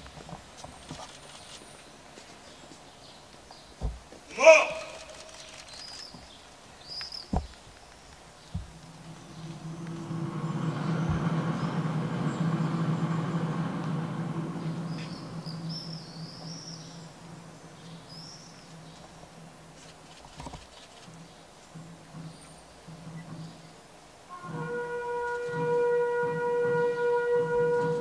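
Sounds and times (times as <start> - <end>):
birds chirping: 0.0 - 24.3
vehicle engine hum: 0.0 - 28.0
low knock: 8.5 - 11.8.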